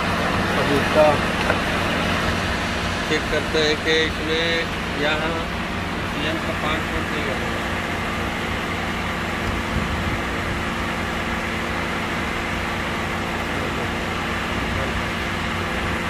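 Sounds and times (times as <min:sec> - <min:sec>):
electric cooling fan hum: 0:00.0 - 0:16.0.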